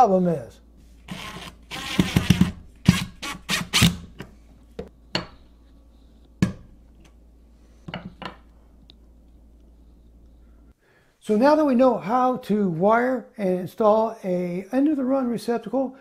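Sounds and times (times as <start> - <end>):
screwdriver rasping on screw: 1.1 - 4.0.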